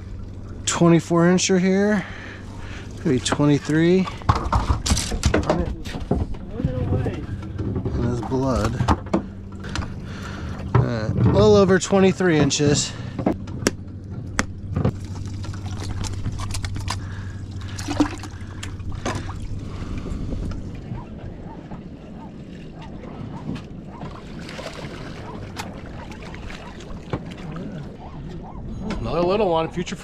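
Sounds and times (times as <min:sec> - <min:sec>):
wash of open water: 0:00.0 - 0:05.2, 0:06.0 - 0:13.3, 0:14.0 - 0:30.0
boat motor humming: 0:00.0 - 0:30.0
knocks and clicks of gear: 0:13.2 - 0:15.0.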